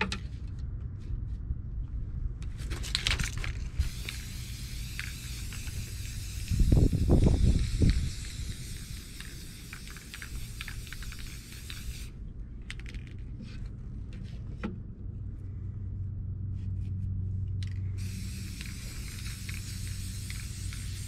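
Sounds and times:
spray paint can hissing: 0:03.6 - 0:12.8, 0:17.6 - 0:21.0.

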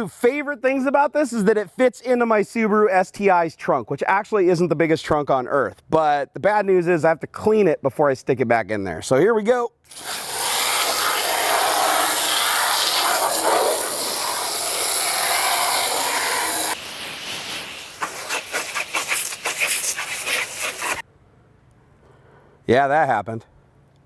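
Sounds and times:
hose spraying water on metal: 0:09.9 - 0:21.0.

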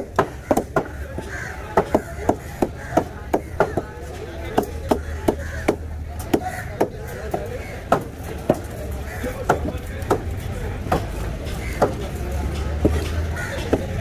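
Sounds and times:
knife chopping fish on a block: 0:00.0 - 0:08.7, 0:09.4 - 0:10.3.

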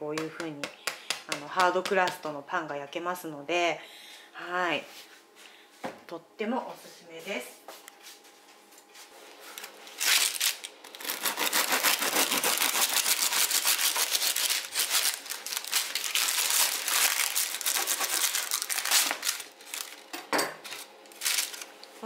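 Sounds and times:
bread knife sawing crust: 0:11.0 - 0:14.9.

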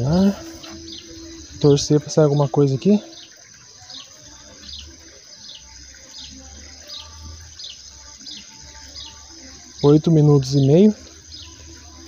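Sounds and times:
small bird chirping: 0:03.1 - 0:12.0.

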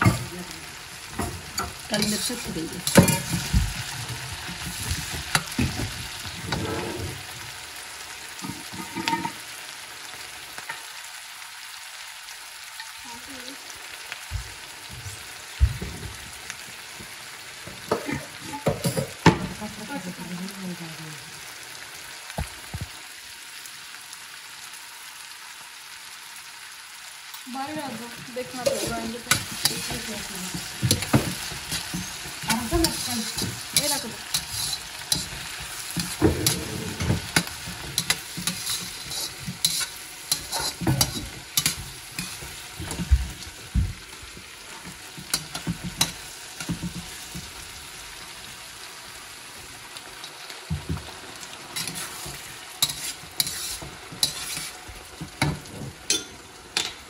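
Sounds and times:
vegetables sizzling in a wok: 0:00.0 - 0:57.0
spatula scraping a pan: 0:01.2 - 0:07.4, 0:08.4 - 0:09.4, 0:28.5 - 0:43.5, 0:51.7 - 0:56.4.

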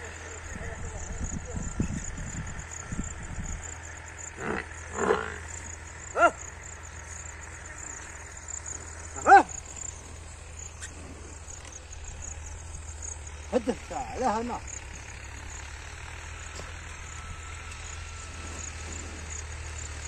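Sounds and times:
steady low rumble: 0:00.0 - 0:13.6
short sharp vocal calls: 0:04.3 - 0:11.9.

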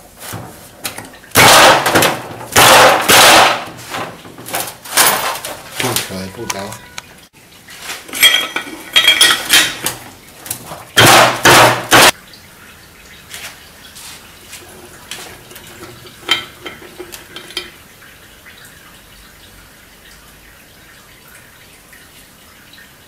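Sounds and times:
metal tools clinking: 0:04.5 - 0:06.1, 0:08.1 - 0:10.0, 0:15.5 - 0:17.8.

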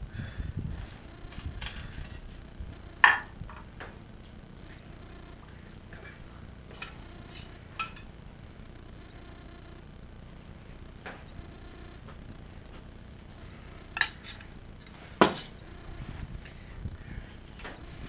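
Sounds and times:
utensils clacking on dishes: 0:06.7 - 0:08.1, 0:14.0 - 0:14.4
spoon tapping saucepan: 0:07.8 - 0:08.1.

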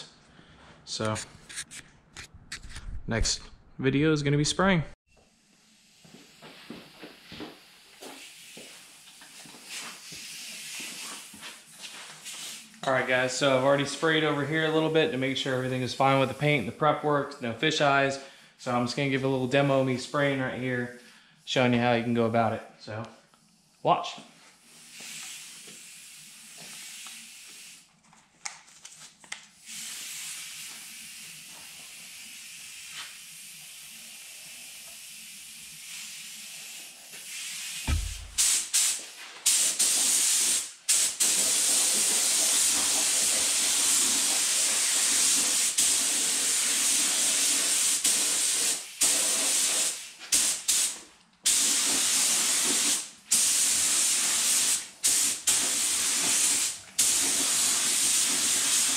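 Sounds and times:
paint spray gun hissing: 0:24.6 - 0:27.8, 0:29.6 - 0:58.9
low thump: 0:37.9 - 0:38.5.

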